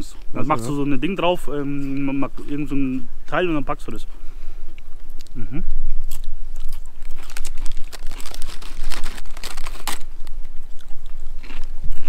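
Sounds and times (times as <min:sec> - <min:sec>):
plastic bag crinkling: 0:06.6 - 0:10.3
wafer crunching: 0:06.6 - 0:10.3.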